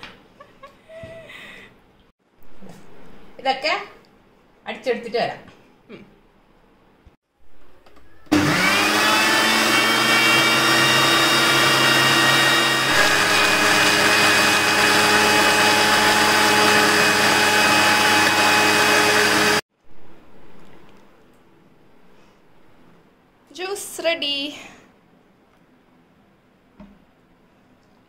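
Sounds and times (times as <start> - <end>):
mixer grinder motor whine: 8.2 - 19.6.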